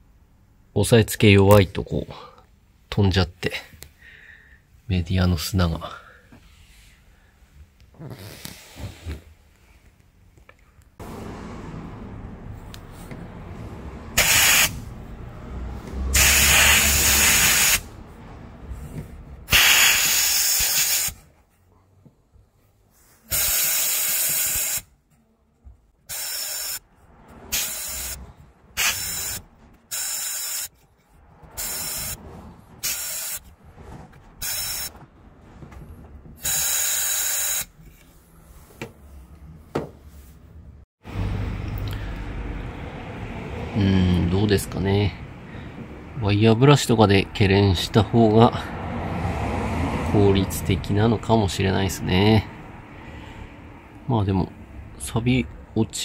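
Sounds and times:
sandblaster hissing blasts: 14.2s - 14.8s, 16.2s - 17.9s, 19.5s - 21.2s, 23.3s - 24.8s, 26.1s - 26.8s, 27.5s - 28.2s, 28.8s - 30.7s, 32.8s - 33.4s, 34.4s - 34.9s, 36.4s - 37.7s.

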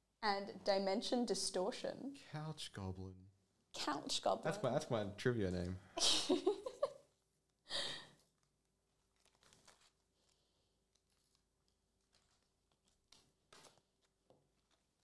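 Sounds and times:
person speaking: 2.2s - 6.2s
cards rustling and tapping: 8.2s - 15.0s.

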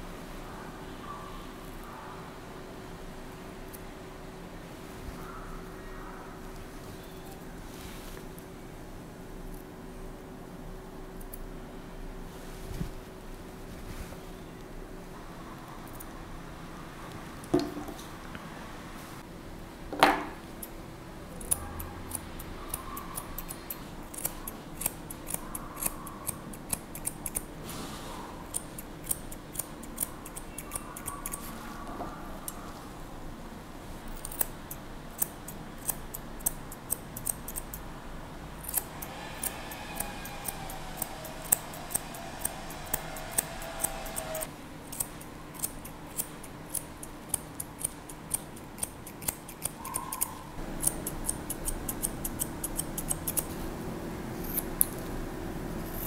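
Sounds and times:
scissors snipping dog hair: 21.4s - 27.5s, 28.4s - 31.6s, 34.1s - 37.8s, 38.6s - 53.6s, 54.4s - 55.1s.

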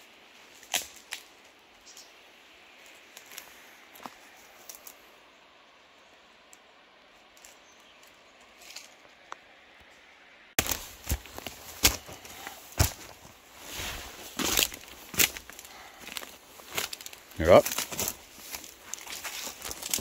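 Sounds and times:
footsteps through dry bracken: 2.8s - 5.0s, 10.6s - 20.0s.

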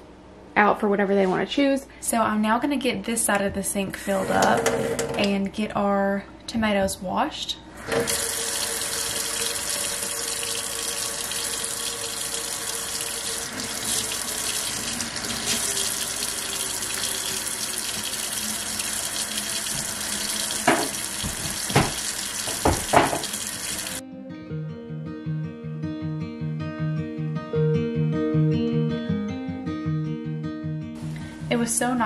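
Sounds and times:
faucet running into steel sink: 7.8s - 24.0s.

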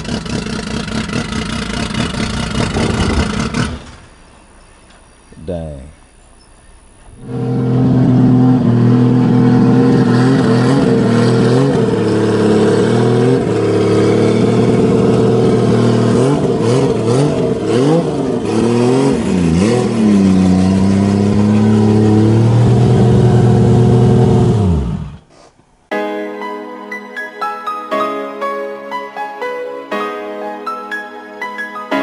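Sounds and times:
car engine revving: 0.0s - 4.5s, 7.1s - 25.3s.

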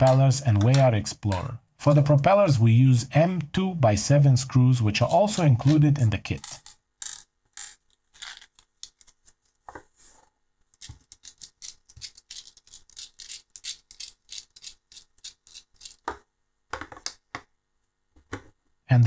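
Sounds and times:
loose screws handled: 5.6s - 9.2s, 10.7s - 16.2s.

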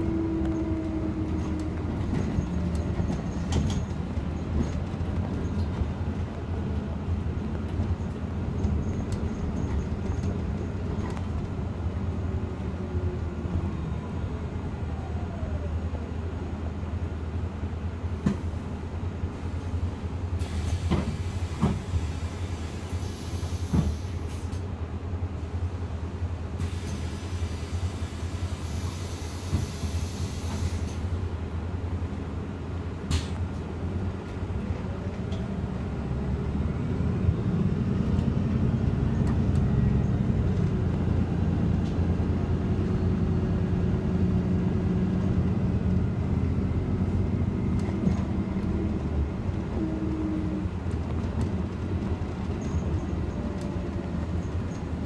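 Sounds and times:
bus engine rumble: 0.0s - 55.0s
air hiss: 20.4s - 24.6s, 26.6s - 31.0s.

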